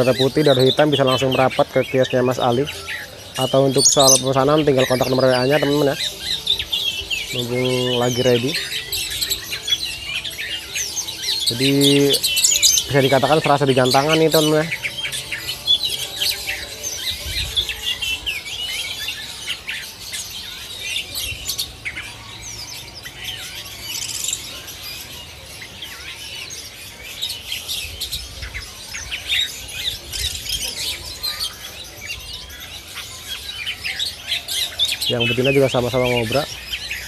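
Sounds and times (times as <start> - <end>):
songbirds chirping and whistling: 0.0 - 37.0.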